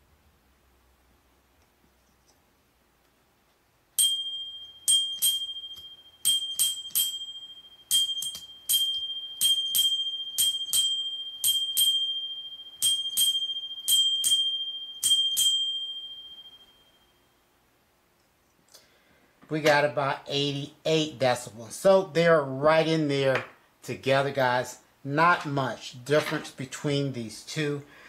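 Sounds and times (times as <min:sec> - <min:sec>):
bicycle bell dinging: 0:04.0 - 0:17.4.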